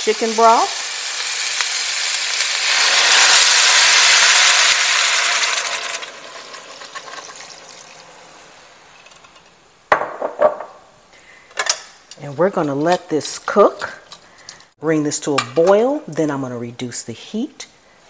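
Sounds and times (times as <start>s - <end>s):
broth hissing in hot pot: 0.0s - 9.1s.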